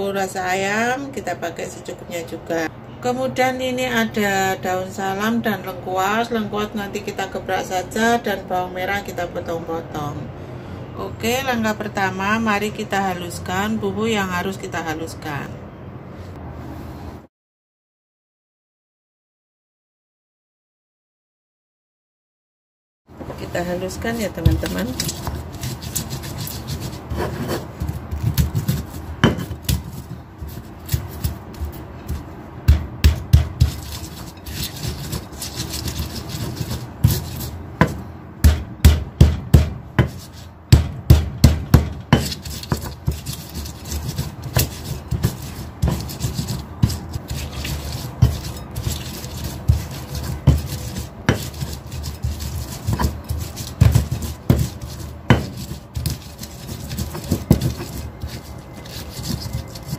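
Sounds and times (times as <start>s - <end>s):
pestle scraping in mortar: 23.2s - 59.9s
pestle knocks: 24.4s - 30.1s, 32.0s - 58.4s.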